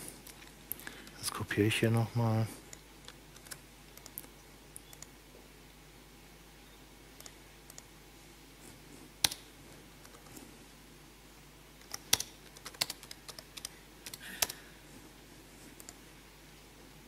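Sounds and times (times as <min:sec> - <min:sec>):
computer keyboard typing: 0:02.7 - 0:05.1, 0:10.0 - 0:10.3, 0:11.8 - 0:14.6.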